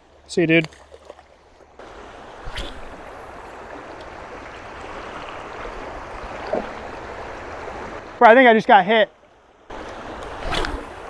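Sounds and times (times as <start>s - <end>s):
river current rushing: 1.8s - 8.4s, 9.5s - 11.0s.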